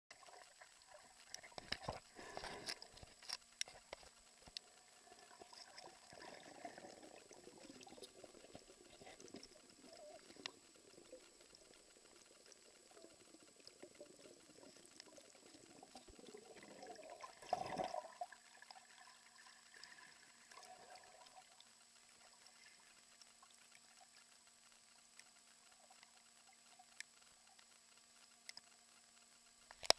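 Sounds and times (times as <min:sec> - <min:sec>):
underwater moving water bubbling: 0:00.1 - 0:29.7
sharp underwater clicks and knocks: 0:01.2 - 0:05.4, 0:29.5 - 0:29.9.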